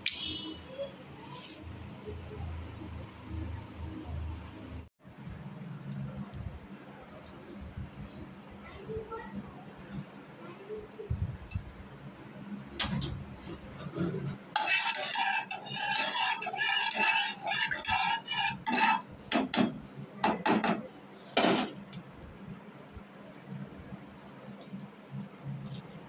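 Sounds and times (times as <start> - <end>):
spoon scraping a pan: 13.0 - 20.4.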